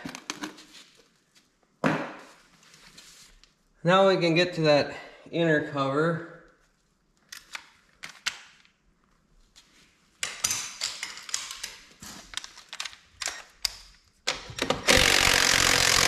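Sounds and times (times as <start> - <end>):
tool clicks and knocks: 12.8 - 15.0
impact driver hammering: 14.6 - 16.0.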